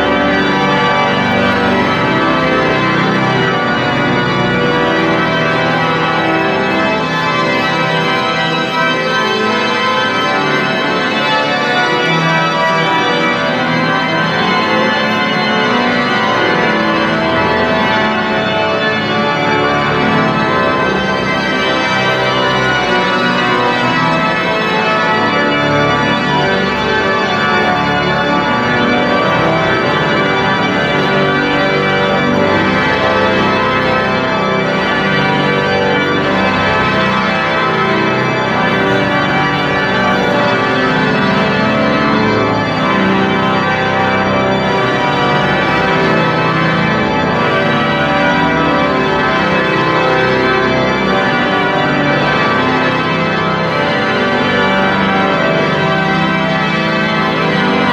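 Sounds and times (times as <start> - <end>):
pipe organ playing chords: 0.0 - 57.9.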